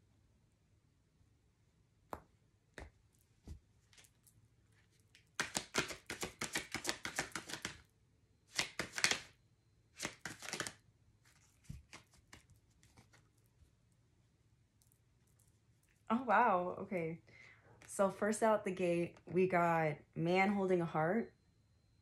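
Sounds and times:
cards being shuffled: 4.8 - 7.8, 8.5 - 9.3, 10.0 - 13.4.

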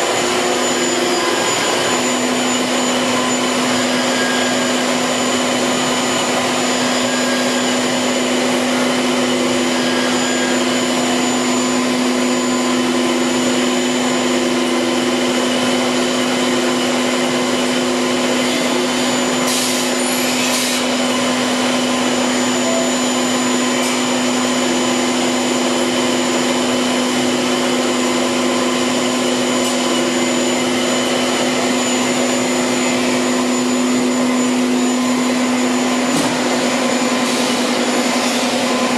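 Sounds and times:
machine spindle whine: 0.0 - 38.9.

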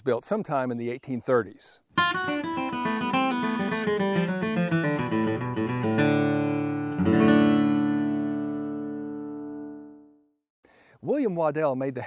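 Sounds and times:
acoustic guitar: 1.9 - 10.2.

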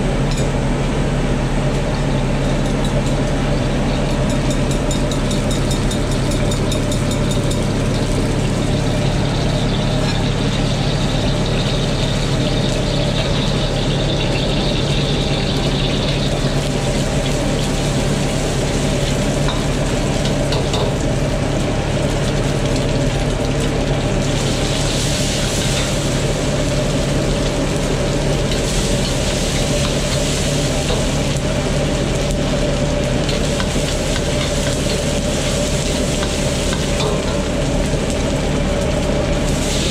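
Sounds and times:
egg frying in hot oil: 0.0 - 39.9
gas burner and blower humming: 0.0 - 39.9.

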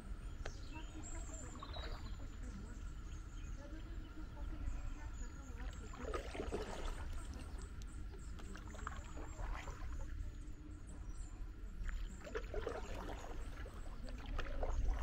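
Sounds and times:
paddle splashing in water: 5.6 - 10.3, 11.8 - 15.0.

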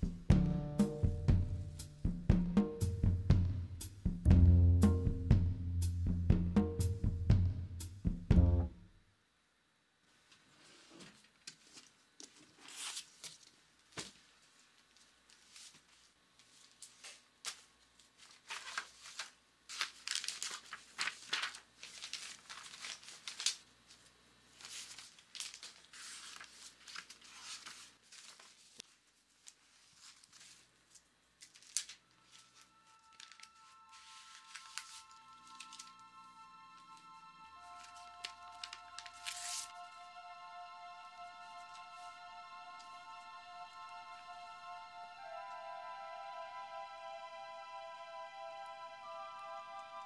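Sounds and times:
steady musical tones: 0.0 - 8.9, 32.2 - 50.0
paper rustling and crinkling: 10.2 - 36.1, 37.7 - 39.8.

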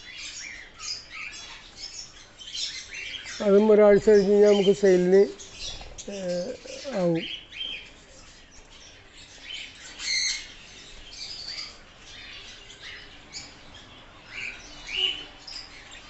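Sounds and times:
budgerigars chirping and chattering: 0.0 - 16.0.

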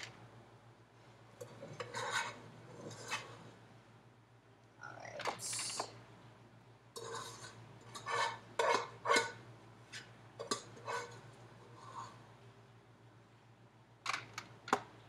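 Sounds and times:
utensil scraping a saucepan: 1.4 - 3.5, 7.0 - 9.4, 10.0 - 12.2.

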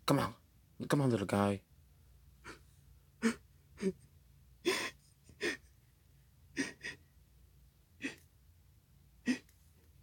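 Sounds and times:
person gasping: 3.2 - 4.0, 4.6 - 5.7, 8.0 - 8.2, 9.2 - 9.5.

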